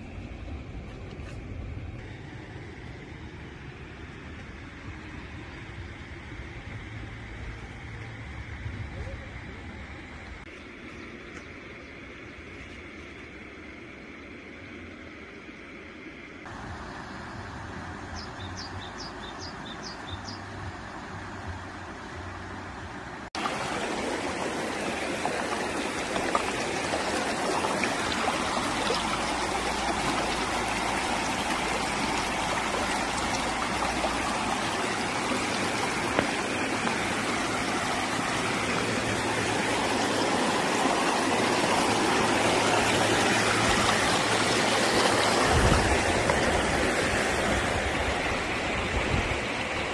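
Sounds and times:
stream water rushing over rocks: 16.4s - 49.9s.

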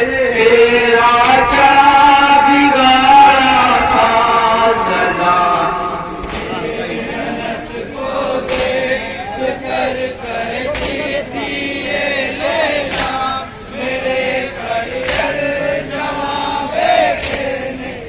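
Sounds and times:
men chanting in unison: 0.0s - 18.0s
crowd beating chests: 1.2s - 9.2s, 10.6s - 11.2s, 12.7s - 17.6s.

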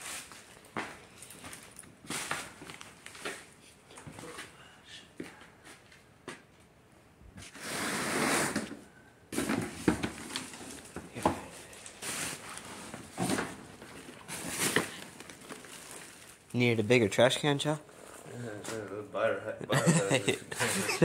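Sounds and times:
cardboard box scraping: 7.5s - 8.7s
boxes knocking and thudding: 8.5s - 15.5s.

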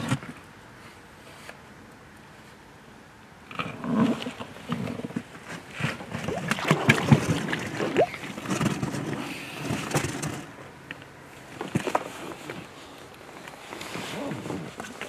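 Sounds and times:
knocks and clatter in a boat: 4.0s - 10.5s.

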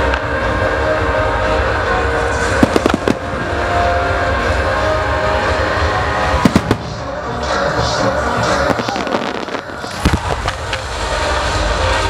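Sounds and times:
firework shells bursting: 2.6s - 3.6s, 6.4s - 7.2s.

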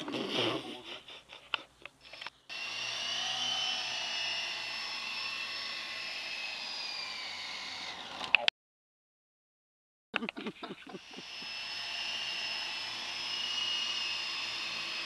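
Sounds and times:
rc helicopter motor whine: 2.0s - 8.5s, 11.0s - 15.0s.

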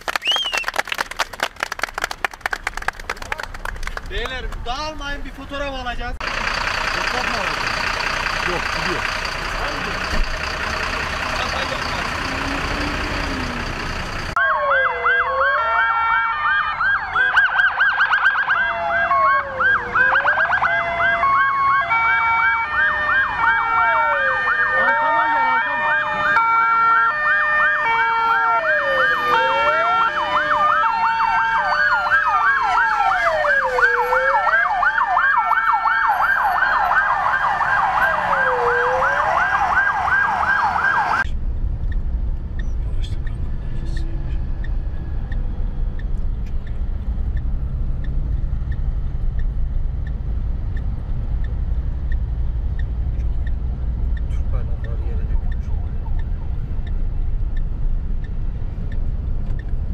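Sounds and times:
engine rumble: 0.0s - 14.8s, 15.4s - 59.9s
emergency sirens wailing and yelping: 6.2s - 41.3s, 42.7s - 59.9s.

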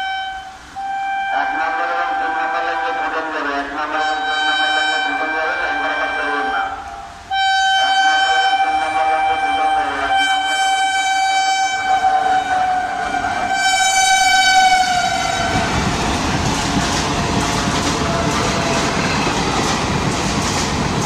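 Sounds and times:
locomotive horn blast: 0.0s - 19.7s
train wheels clattering on rails: 13.5s - 21.0s.

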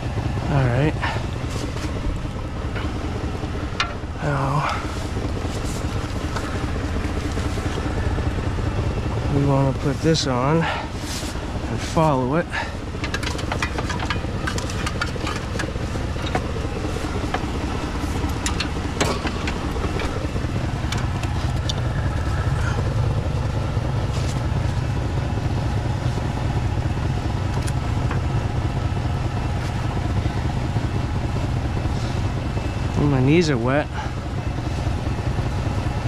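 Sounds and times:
truck engine idling: 0.0s - 36.0s
metallic clicks of hose fittings: 13.0s - 16.4s, 18.2s - 20.2s.

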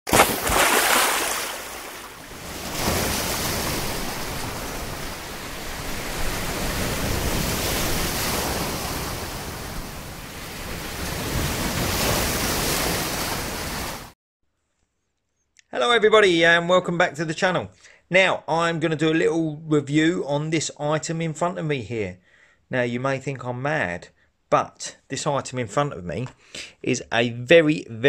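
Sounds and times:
sea waves breaking on shore: 0.1s - 14.2s.

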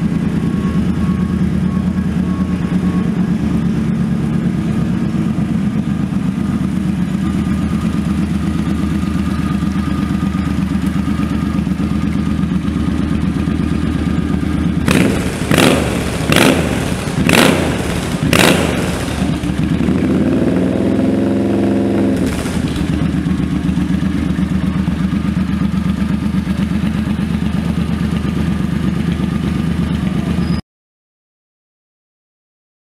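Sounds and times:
motorcycle engine idling and revving: 0.0s - 30.6s.

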